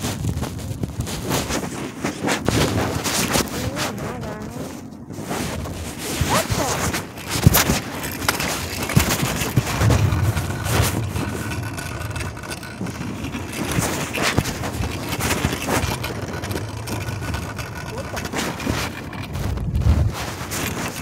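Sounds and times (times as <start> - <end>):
cloth rubbing against microphone: 0.0 - 16.6, 17.2 - 21.0
low rumble: 9.5 - 18.2.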